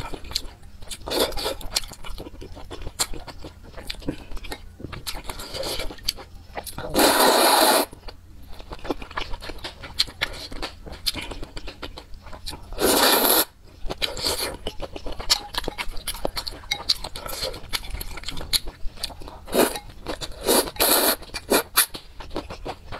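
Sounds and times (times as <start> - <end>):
slurping noodles: 6.9 - 8.0, 12.8 - 13.5, 19.5 - 21.9
wet chewing and lip smacks: 8.0 - 12.7.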